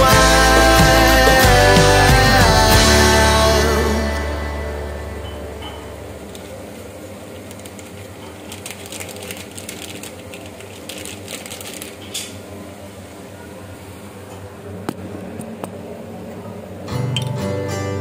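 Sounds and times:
foil packet crinkling: 0:06.3 - 0:12.4.

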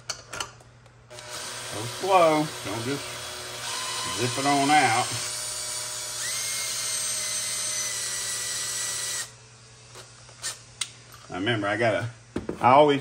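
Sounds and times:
cordless drill motor spinning: 0:01.1 - 0:10.7.

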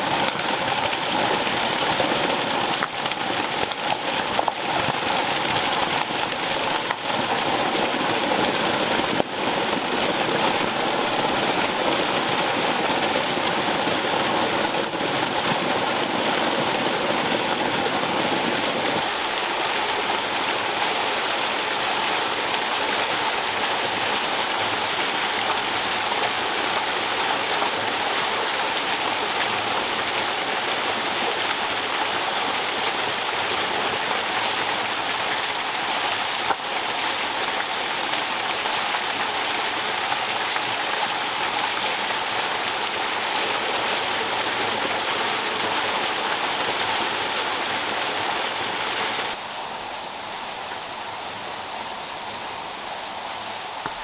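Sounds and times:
waterfall splashing into pool: 0:00.0 - 0:49.5
steady outdoor hiss: 0:00.0 - 0:54.0.

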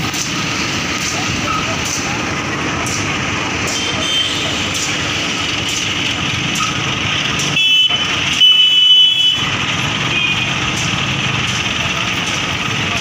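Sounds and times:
crane diesel engine running: 0:00.0 - 0:13.0
vehicle horn blasts: 0:03.8 - 0:04.7, 0:07.5 - 0:09.5.

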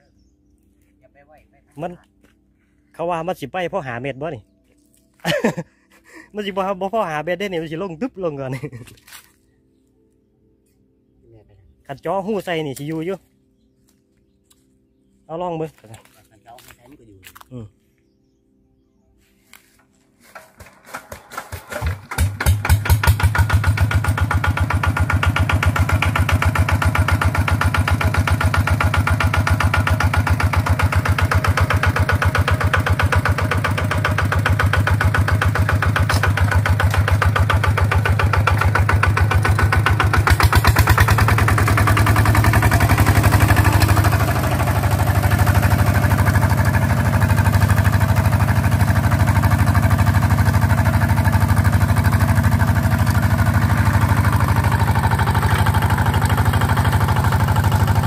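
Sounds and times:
diesel engine chugging: 0:20.3 - 0:58.0.

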